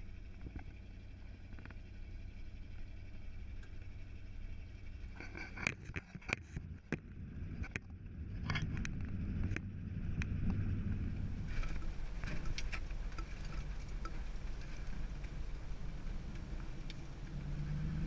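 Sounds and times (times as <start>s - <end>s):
engine and road rumble: 0.0s - 18.0s
clicks and rattles: 5.1s - 7.0s, 11.5s - 15.4s.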